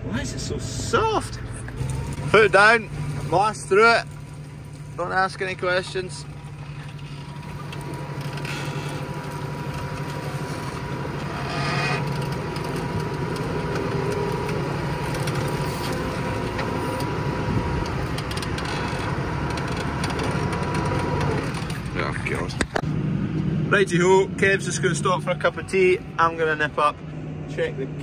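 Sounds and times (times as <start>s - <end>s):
tractor engine under load: 0.0s - 28.0s
rough noise: 4.9s - 22.8s.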